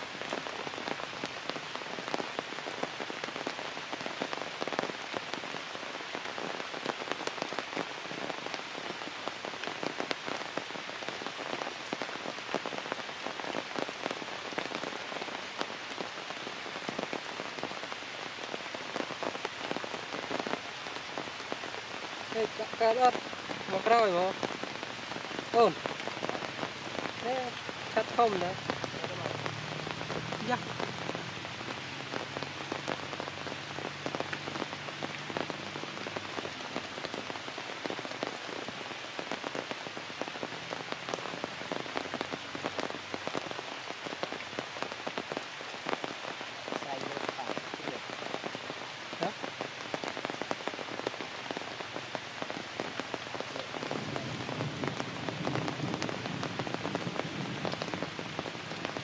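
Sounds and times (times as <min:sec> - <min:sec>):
rain falling on leaves: 0:00.0 - 0:59.0.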